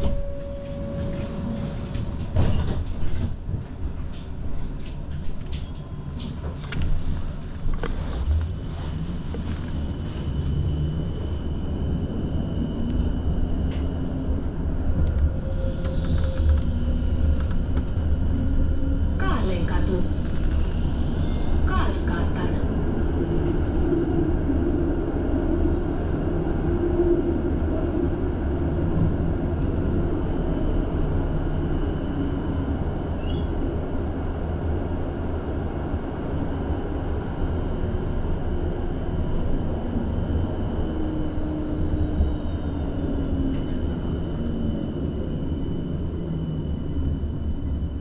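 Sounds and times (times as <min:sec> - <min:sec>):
humming tone sinking in pitch: 0:00.0 - 0:02.3
tram wheels rumbling on rails: 0:00.0 - 0:48.0.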